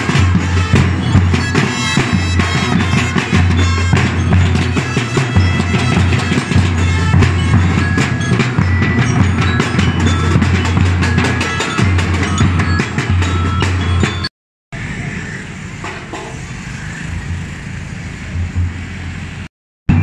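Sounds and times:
marching drum line: 0.0 - 14.3
short ringing high notes: 0.1 - 14.3.

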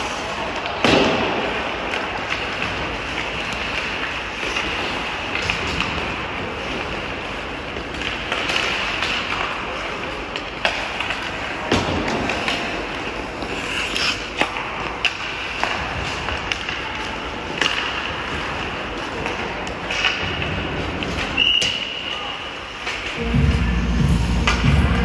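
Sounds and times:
hockey sticks and puck clacking: 0.0 - 23.6, 24.2 - 25.0
skate blades scraping ice: 12.2 - 21.6
whistle: 21.4 - 22.2.

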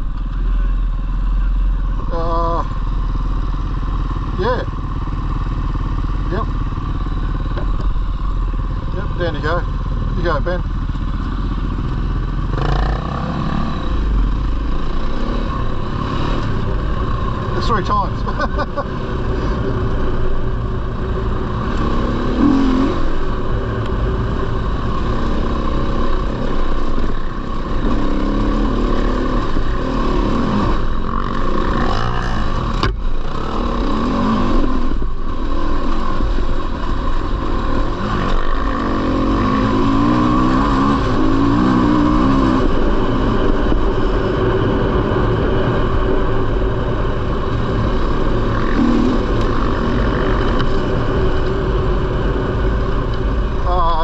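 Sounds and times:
dirt bike engine revving: 2.0 - 54.0
low wind rumble on microphone: 18.8 - 54.0.

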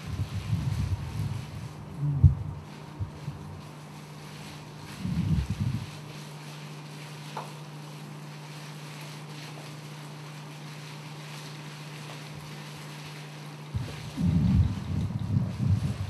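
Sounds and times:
low electrical hum: 0.0 - 16.0
short low rumble: 13.8 - 16.0.

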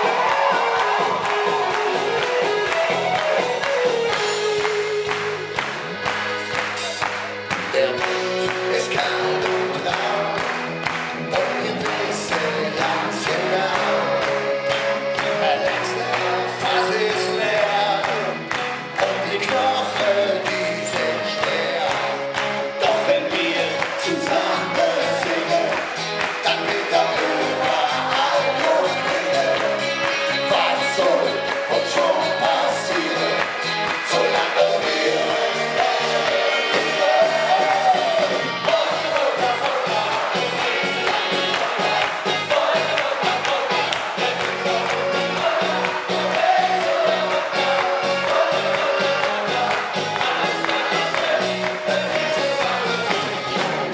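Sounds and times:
steady drum beat: 0.0 - 14.1, 19.0 - 53.9
electric guitar: 0.0 - 53.9
rock band playing polka: 0.0 - 53.9
men singing together: 7.7 - 18.4, 19.0 - 53.9.

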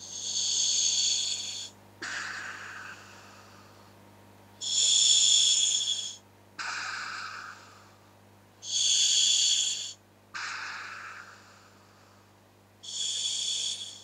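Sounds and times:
inhalation hiss with whistling: 0.0 - 3.7, 4.6 - 7.7, 8.6 - 11.8, 12.8 - 14.0
exhalation rush: 1.6 - 3.7, 6.6 - 7.9.

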